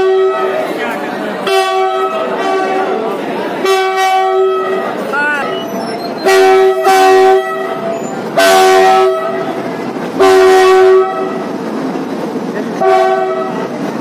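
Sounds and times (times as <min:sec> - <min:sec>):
locomotive horn blasts: 0:00.0 - 0:00.7, 0:01.4 - 0:05.6, 0:06.2 - 0:11.5, 0:12.8 - 0:13.7.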